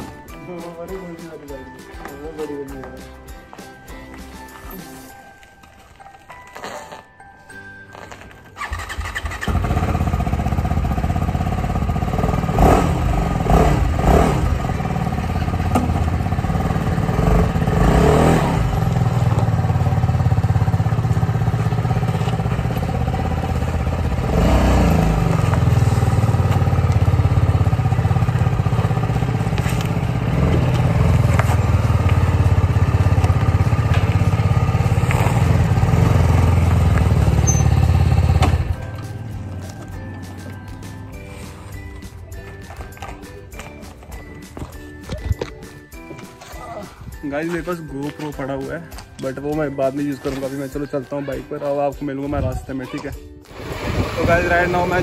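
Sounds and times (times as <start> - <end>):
motorcycle engine starting and idling: 8.0 - 41.1, 53.5 - 55.0.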